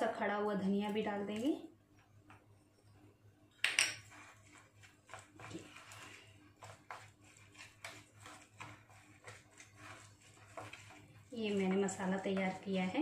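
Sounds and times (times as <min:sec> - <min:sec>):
spoon scraping metal bowl: 0:03.8 - 0:13.0.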